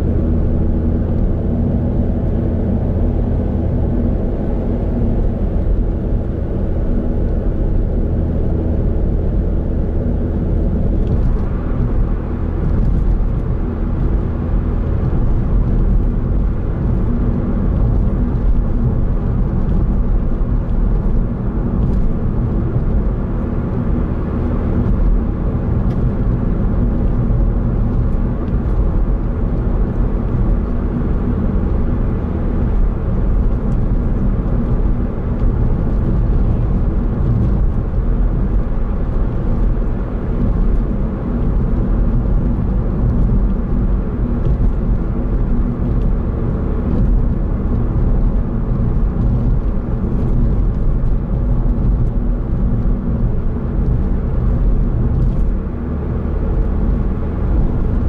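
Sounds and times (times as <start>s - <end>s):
car engine cruising: 0.0s - 58.0s
tyre road noise: 0.0s - 58.0s.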